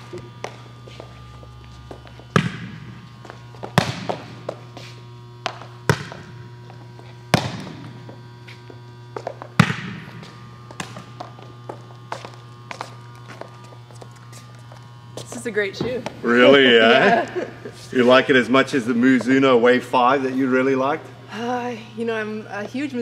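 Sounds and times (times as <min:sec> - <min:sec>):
low hum: 0:00.0 - 0:23.0
shoes thudding on court floor: 0:01.9 - 0:14.4.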